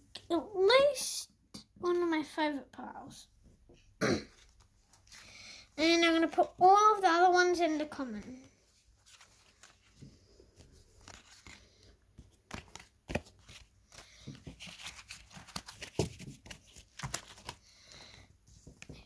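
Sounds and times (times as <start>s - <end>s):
cards sliding and tapping together: 9.1s - 17.6s.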